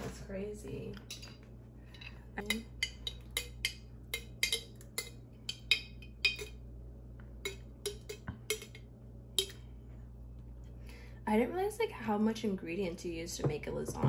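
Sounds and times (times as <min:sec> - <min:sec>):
metal spoon clinking in glass jar: 0:02.5 - 0:06.6, 0:07.4 - 0:08.8, 0:09.4 - 0:09.6.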